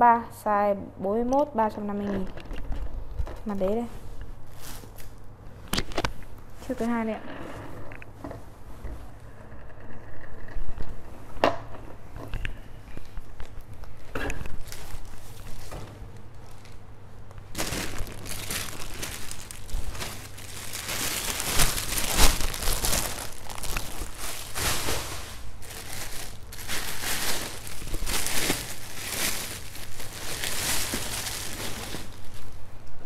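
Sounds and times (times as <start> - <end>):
plastic bags crinkling: 14.5 - 15.6, 17.4 - 32.7.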